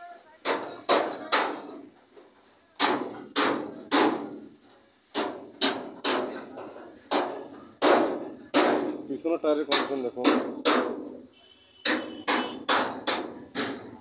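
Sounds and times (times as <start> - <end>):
hammer striking metal: 2.8 - 4.4, 5.1 - 6.5, 9.7 - 11.2, 11.8 - 13.9.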